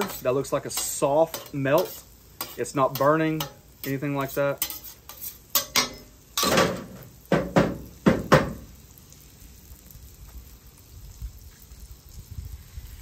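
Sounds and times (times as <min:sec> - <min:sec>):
metal spatula scraping griddle: 0:00.0 - 0:07.1
metal spatula clacking on griddle: 0:00.0 - 0:08.6.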